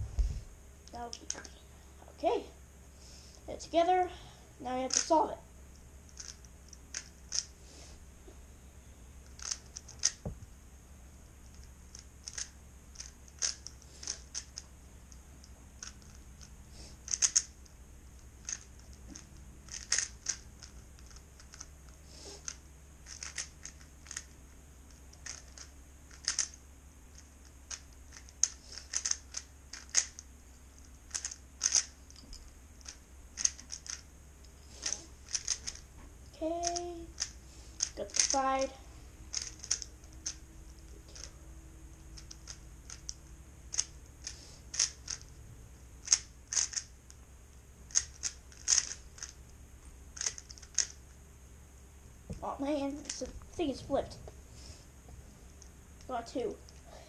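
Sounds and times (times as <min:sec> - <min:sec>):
puzzle cube clicking: 0:04.9 - 0:05.1, 0:06.1 - 0:07.5, 0:09.3 - 0:10.3, 0:11.5 - 0:14.7, 0:15.8 - 0:17.8, 0:18.4 - 0:21.7, 0:22.3 - 0:24.3, 0:24.9 - 0:32.0, 0:32.8 - 0:34.0, 0:34.8 - 0:35.8, 0:36.6 - 0:38.4, 0:39.3 - 0:41.3, 0:42.0 - 0:45.3, 0:46.0 - 0:46.9, 0:47.9 - 0:49.4, 0:50.2 - 0:51.0, 0:53.0 - 0:53.3.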